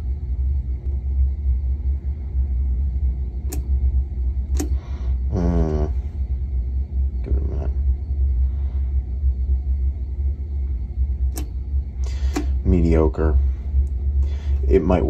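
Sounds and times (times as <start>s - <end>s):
steady low hum: 0.0s - 15.0s
selector knob clicks: 3.5s - 3.7s, 4.5s - 4.8s, 11.3s - 11.6s, 12.3s - 12.6s.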